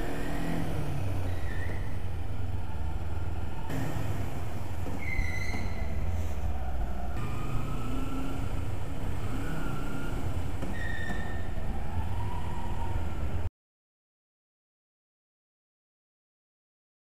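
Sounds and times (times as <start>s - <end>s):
motorcycle engine at low revs: 0.0s - 2.6s, 3.7s - 6.0s, 7.2s - 11.9s
high gliding squeals: 2.8s - 13.2s.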